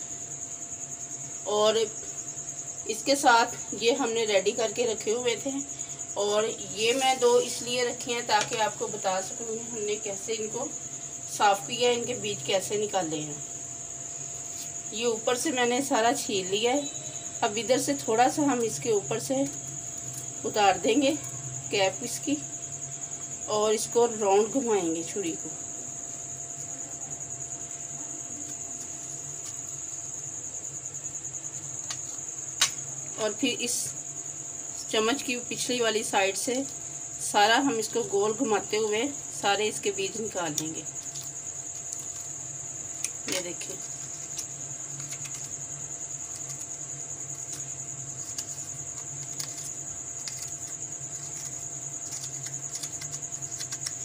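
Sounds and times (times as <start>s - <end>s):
spoon scraping inside gourd: 46.2s - 54.0s.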